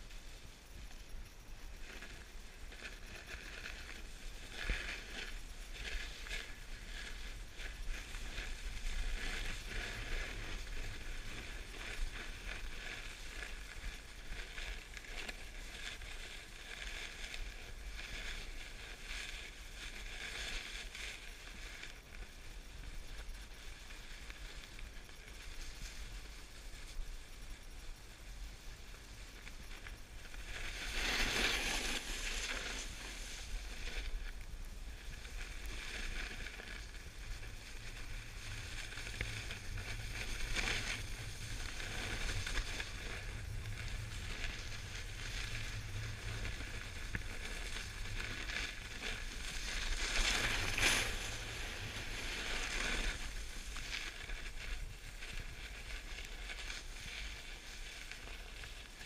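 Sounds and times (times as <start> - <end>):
snowboard sliding over snow: 0.0 - 59.0.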